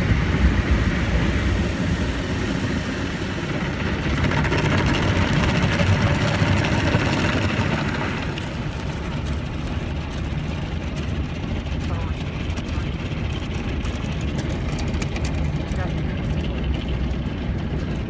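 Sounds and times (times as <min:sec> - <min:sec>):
water spraying on car: 0:00.0 - 0:16.2.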